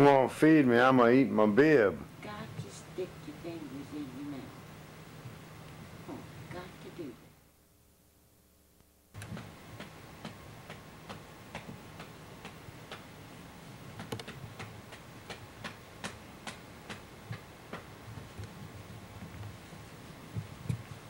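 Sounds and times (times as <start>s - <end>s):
regular ticking: 9.1s - 13.2s, 13.9s - 19.5s.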